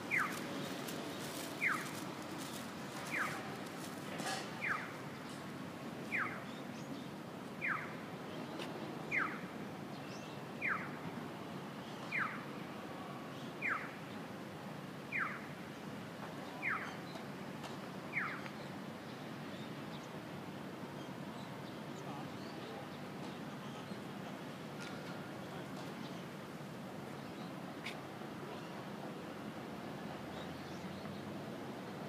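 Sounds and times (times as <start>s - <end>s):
low traffic hum: 0.0s - 32.0s.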